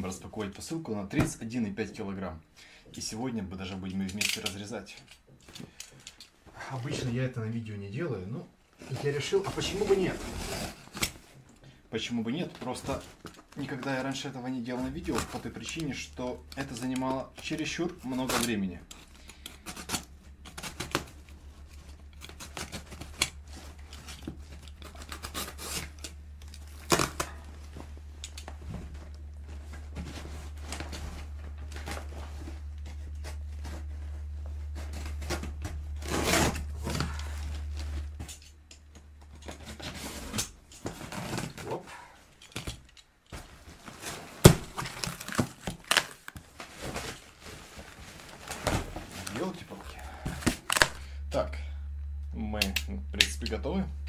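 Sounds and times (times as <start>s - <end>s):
low steady hum: 0.0s - 54.0s
knife cutting packaging: 15.0s - 27.4s, 35.0s - 37.8s, 44.0s - 47.2s, 48.4s - 51.1s.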